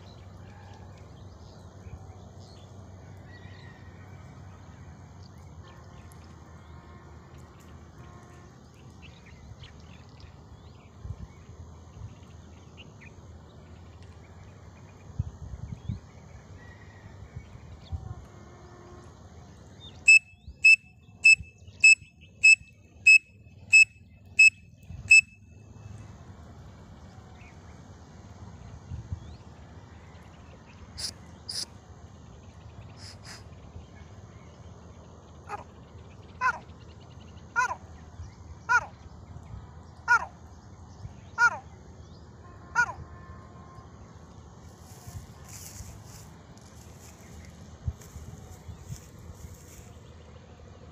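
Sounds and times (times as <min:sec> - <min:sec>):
shrill whistle notes: 0:20.1 - 0:24.5.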